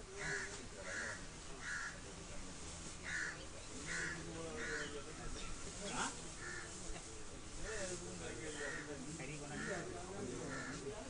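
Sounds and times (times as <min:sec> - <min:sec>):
faint murmur of voices: 0:00.0 - 0:11.0
crow cawing: 0:00.2 - 0:02.0, 0:03.0 - 0:05.0, 0:10.5 - 0:10.8.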